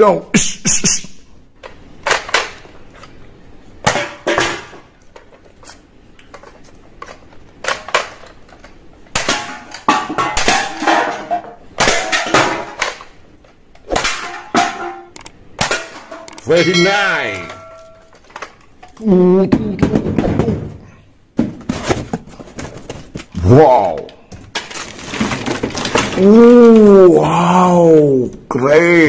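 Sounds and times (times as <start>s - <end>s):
plastic toy guns clattering: 6.3s - 13.2s, 24.4s - 26.3s.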